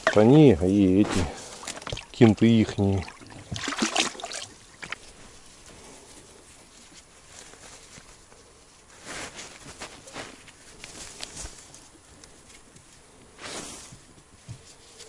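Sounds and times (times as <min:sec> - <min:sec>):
faint outdoor background noise: 0:00.0 - 0:15.0
short rustling: 0:03.6 - 0:15.0.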